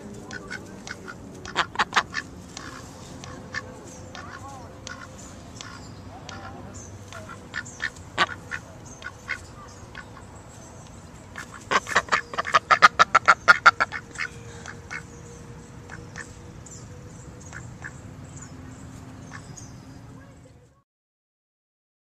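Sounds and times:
ducks quacking: 0.0 - 10.4, 11.3 - 15.1, 15.8 - 16.4, 17.4 - 18.5, 19.2 - 19.6.

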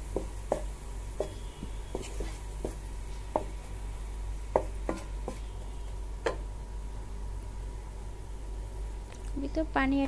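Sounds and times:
faint steady hum: 0.0 - 10.0
wooden spatula knocking pan: 0.1 - 3.6, 4.5 - 5.4, 6.2 - 6.4.

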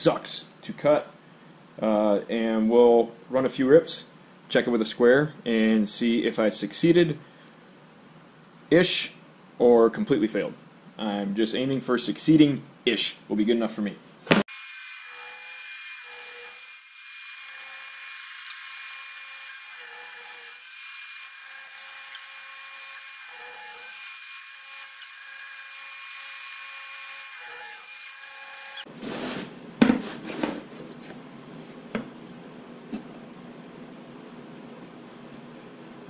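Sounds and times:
table saw cutting: 14.5 - 28.9.

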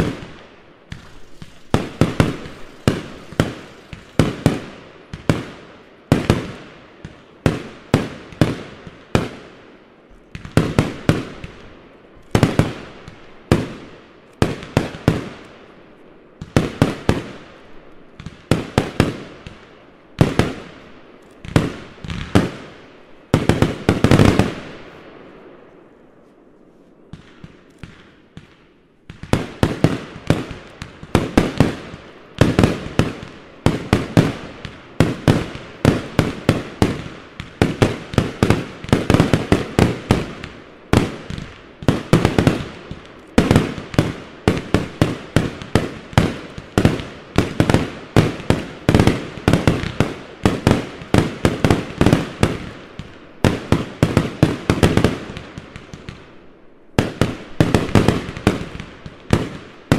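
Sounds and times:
fireworks bangs: 0.0 - 9.5, 10.3 - 15.4, 27.1 - 56.3, 57.0 - 59.9
faint fireworks crackle: 0.0 - 59.9.

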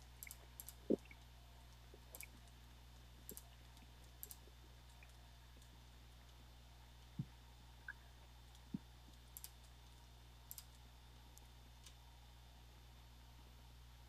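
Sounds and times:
faint low hum: 0.0 - 14.0
computer mouse clicking: 4.2 - 4.4, 9.4 - 9.7, 10.5 - 10.8.

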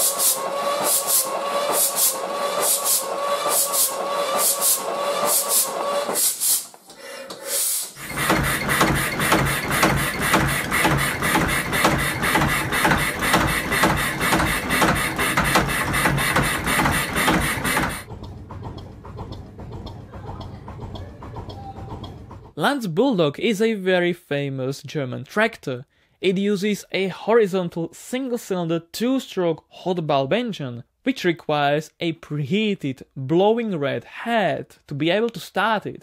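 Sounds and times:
marine diesel engines running: 8.0 - 22.6.

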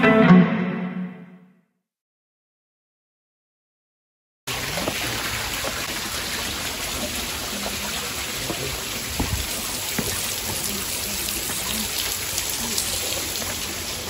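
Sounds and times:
fountain splashing into pool: 4.5 - 14.0
water dripping off rock: 4.5 - 14.0.

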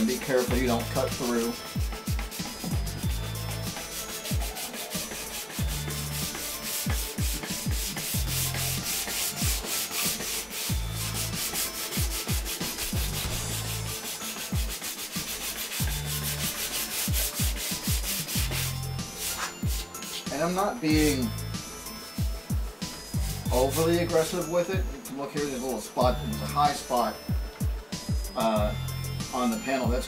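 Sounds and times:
sandpaper rubbing on metal: 0.0 - 21.3, 23.2 - 24.4.

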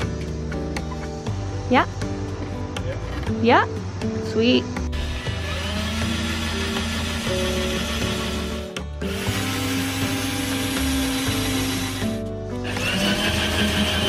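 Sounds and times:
background music: 0.0 - 14.0
cordless drill whirring: 4.9 - 14.0.

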